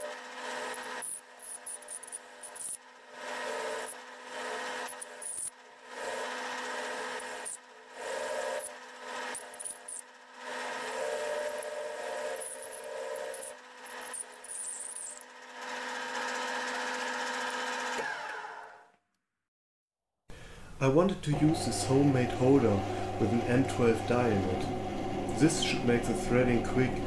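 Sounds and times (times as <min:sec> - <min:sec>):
tool scraping steel shaft: 0:00.0 - 0:17.6
metal lathe humming: 0:00.0 - 0:18.5, 0:21.3 - 0:27.0.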